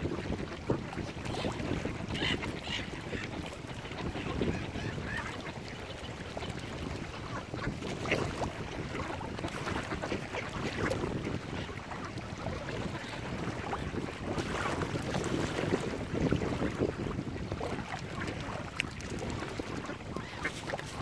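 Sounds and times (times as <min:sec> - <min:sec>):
wind noise: 0:00.0 - 0:21.0
ducks quacking: 0:01.0 - 0:08.2, 0:19.2 - 0:21.0.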